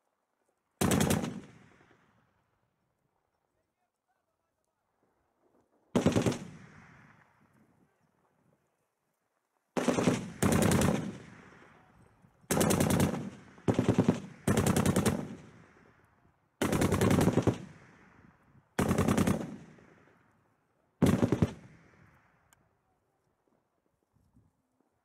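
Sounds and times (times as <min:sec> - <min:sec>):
automatic gunfire bursts: 0:00.8 - 0:01.6, 0:06.0 - 0:06.7, 0:09.8 - 0:11.3, 0:12.5 - 0:15.5, 0:16.6 - 0:17.8, 0:18.8 - 0:19.8, 0:21.0 - 0:21.7.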